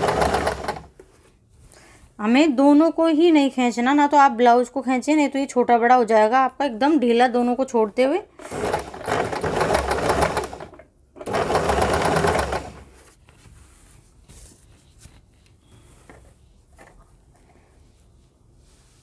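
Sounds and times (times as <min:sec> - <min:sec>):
sewing machine stitching: 0:00.0 - 0:00.9, 0:08.4 - 0:13.0.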